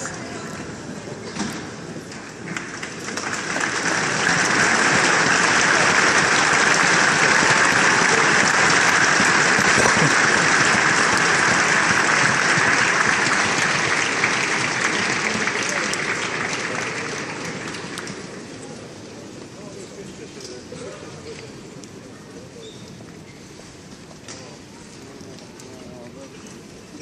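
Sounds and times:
crowd applauding: 2.1s - 19.0s.

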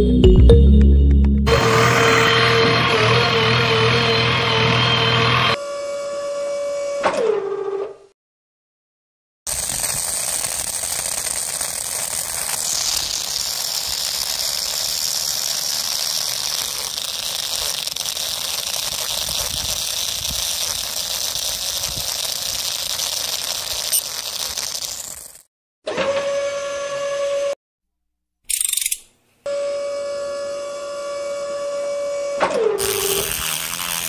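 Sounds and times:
drill bit rattling in sand: 9.5s - 25.5s, 32.8s - 34.0s
small motor whining: 9.5s - 25.5s, 30.8s - 34.0s.

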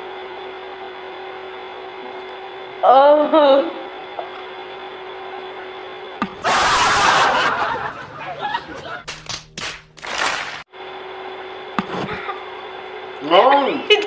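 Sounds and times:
room hum: 0.0s - 14.0s
loud noisy burst: 6.4s - 7.6s
people laughing and snickering: 6.4s - 9.1s.

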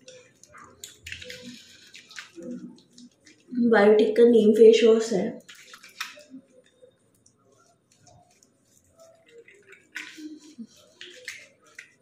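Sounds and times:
wet lather squishing on face: 0.0s - 3.6s, 5.4s - 12.0s.

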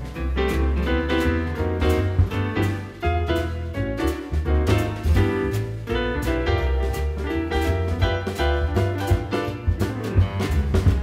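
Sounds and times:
jazz music with piano and bass: 0.0s - 11.0s.

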